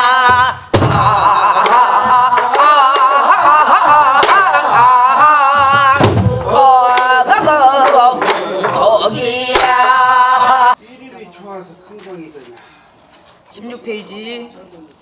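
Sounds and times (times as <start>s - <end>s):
folk singing with wide vibrato: 0.0s - 10.8s.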